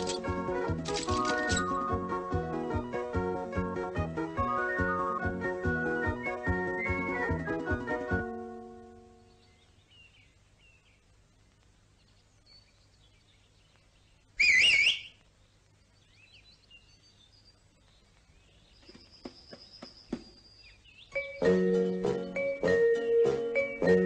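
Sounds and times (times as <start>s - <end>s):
faint birdsong: 0.9s - 2.3s, 8.2s - 24.0s
loud warbling whistle: 14.4s - 15.2s
light taps and knocks: 18.8s - 20.4s.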